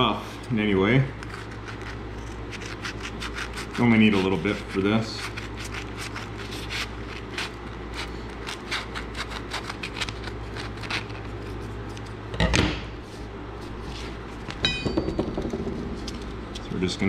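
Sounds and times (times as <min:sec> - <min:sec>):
low hum: 0:10.5 - 0:17.0.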